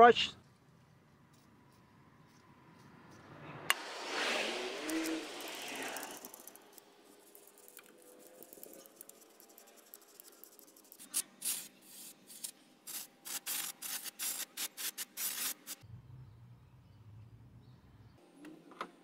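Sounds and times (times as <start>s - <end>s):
aerosol spray can hissing: 4.1s - 15.8s
metal brush scrubbing rusty metal: 4.2s - 15.8s.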